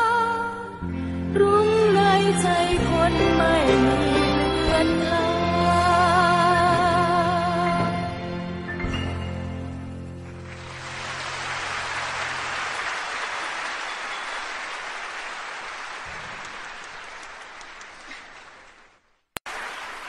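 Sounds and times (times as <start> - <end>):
audience applause: 10.3 - 20.0.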